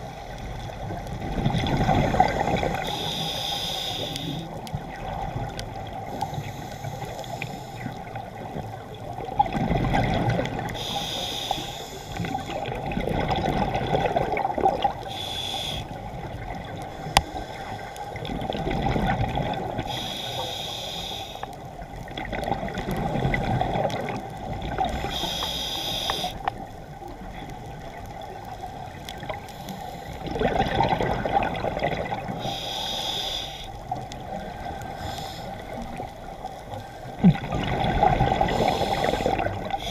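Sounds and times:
bubbles gushing on exhale: 1.2s - 2.9s, 9.2s - 10.9s, 12.2s - 15.1s, 18.2s - 19.9s, 22.1s - 25.2s, 30.2s - 32.5s, 37.0s - 39.9s
regulator hiss on inhale: 2.0s - 4.6s, 5.9s - 8.2s, 10.7s - 12.8s, 15.0s - 18.2s, 19.8s - 21.8s, 24.8s - 26.7s, 29.3s - 30.3s, 32.3s - 37.2s, 38.4s - 39.9s.

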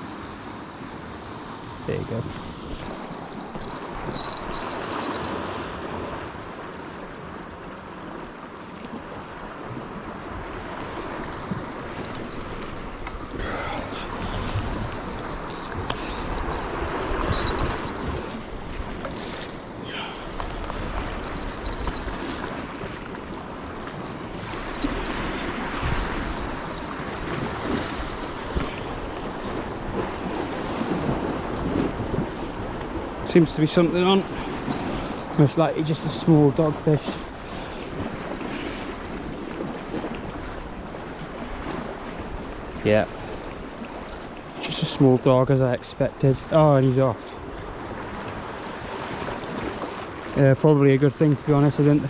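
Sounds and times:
surf washing against rocks: 0.0s - 52.0s
wind on microphone: 9.5s - 33.3s.

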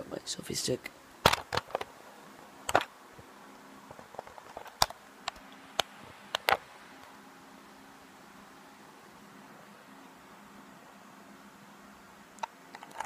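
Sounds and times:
faint steady hiss: 0.0s - 13.0s
phone handling clicks and knocks: 1.2s - 1.9s.

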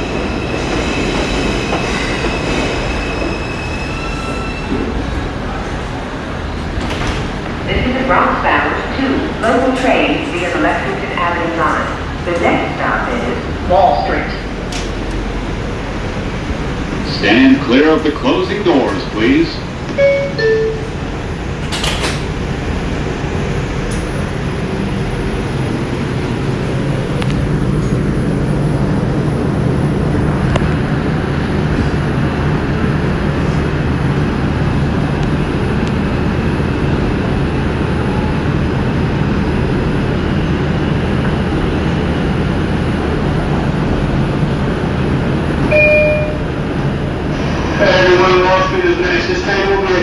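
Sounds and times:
subway wheels rumbling on rails: 0.0s - 50.0s
short high tone: 45.7s - 46.5s.

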